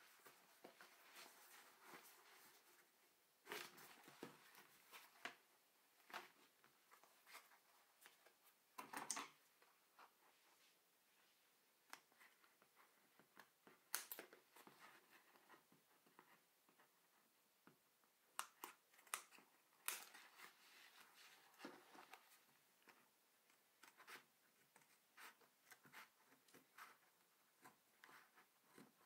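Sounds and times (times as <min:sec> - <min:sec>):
scissors snipping paper: 0:18.3 - 0:20.2.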